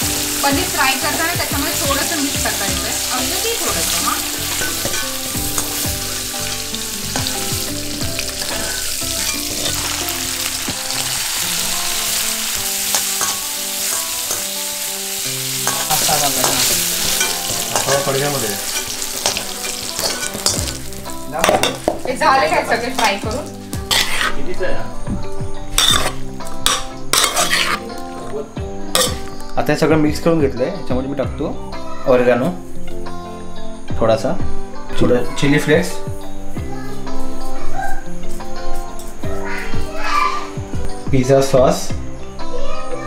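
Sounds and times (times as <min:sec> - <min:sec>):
food sizzling in hot oil: 0:00.0 - 0:29.8
metal spoon clinking on pots: 0:03.3 - 0:07.6, 0:08.2 - 0:11.1, 0:12.8 - 0:14.6, 0:15.6 - 0:20.8, 0:21.4 - 0:23.3, 0:23.9 - 0:24.3, 0:25.8 - 0:28.1, 0:28.9 - 0:29.3.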